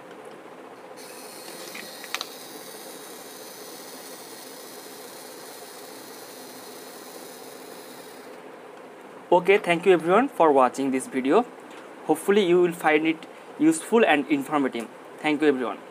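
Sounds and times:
gear motor whirring: 1.0s - 8.4s.

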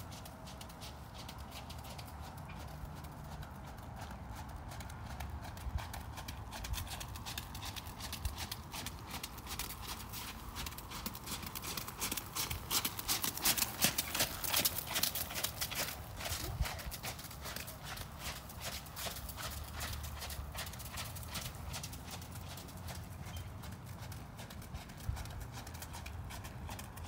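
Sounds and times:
horse hooves trotting on gravel: 0.0s - 27.0s.

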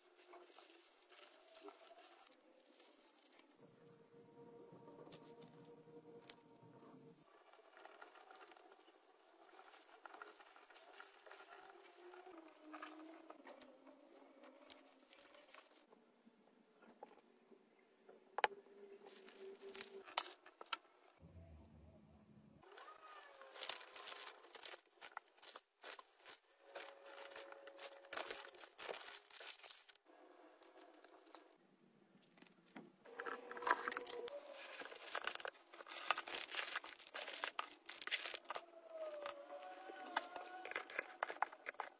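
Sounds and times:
packaging crinkling and rustling: 0.0s - 3.8s, 7.2s - 15.9s, 22.6s - 30.0s, 32.5s - 41.9s.

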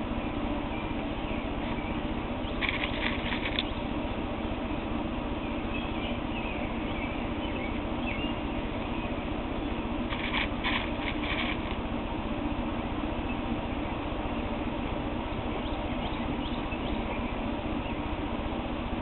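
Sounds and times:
steady hiss: 9.3s - 15.6s.

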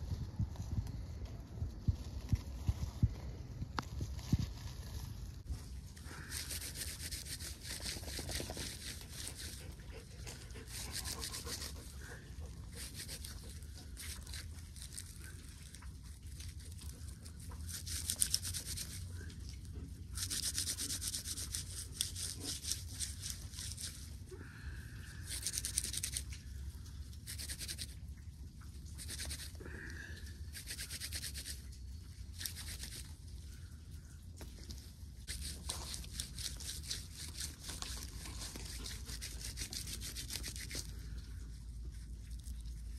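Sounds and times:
dry bark fibres rasping: 6.0s - 19.2s, 20.1s - 24.2s, 25.1s - 26.3s, 27.2s - 28.0s, 29.0s - 29.9s, 30.5s - 31.6s, 32.4s - 33.1s, 35.2s - 41.2s.

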